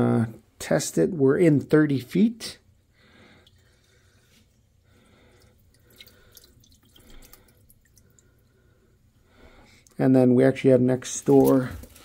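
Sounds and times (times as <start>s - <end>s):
water trickling in a sink: 3.3s - 8.6s.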